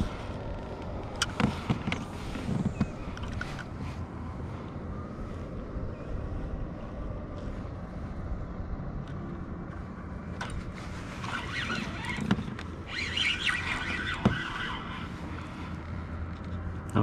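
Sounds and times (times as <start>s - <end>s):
wind on microphone: 0.0s - 15.5s
water against kayak hull: 10.6s - 15.7s.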